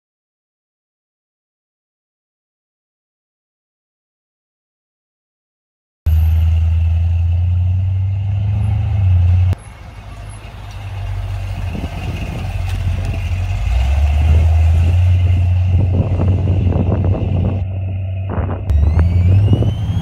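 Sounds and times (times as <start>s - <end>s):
truck engine exhaust note: 6.1s - 20.0s.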